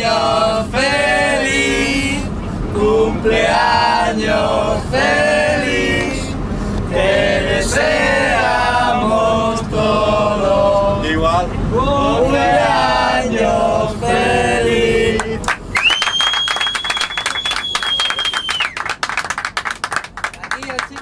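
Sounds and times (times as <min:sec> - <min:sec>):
men singing together: 0:00.0 - 0:15.5.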